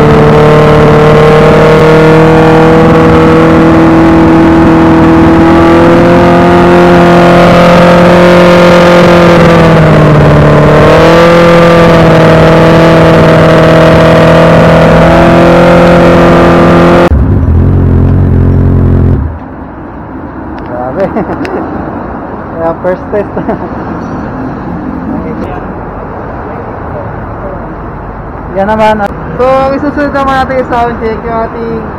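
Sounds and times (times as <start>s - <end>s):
motorcycle engine revving: 0.0s - 19.4s.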